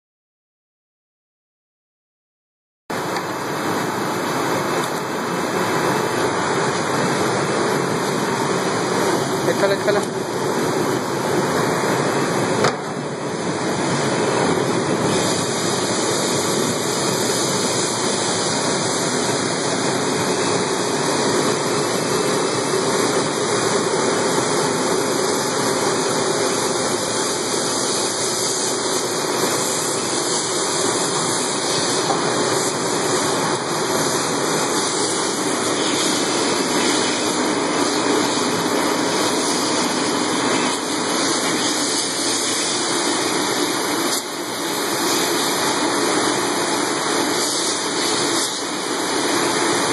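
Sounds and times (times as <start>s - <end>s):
water spraying: 13.4s - 49.9s.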